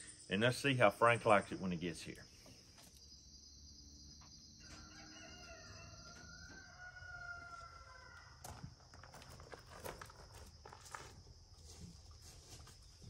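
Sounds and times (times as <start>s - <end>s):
rooster crowing: 4.6s - 8.5s.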